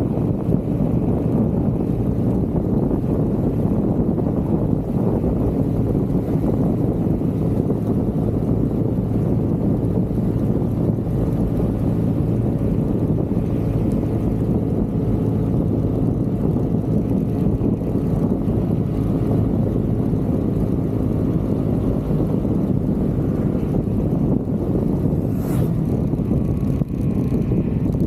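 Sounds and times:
wind rushing on microphone: 0.0s - 28.0s.

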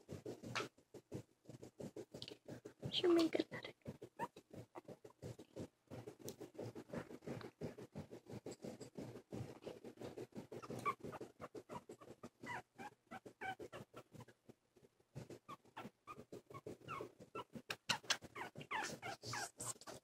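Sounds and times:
puppy snuffling: 0.0s - 20.0s
puppy high squeaks: 10.6s - 14.3s, 15.5s - 19.9s.

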